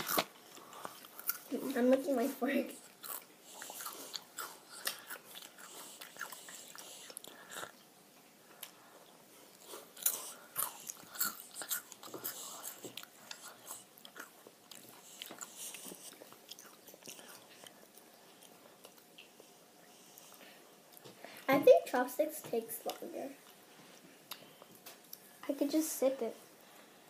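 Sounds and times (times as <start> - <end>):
noodles slurped and chewed: 0.0 - 7.8, 9.4 - 21.0.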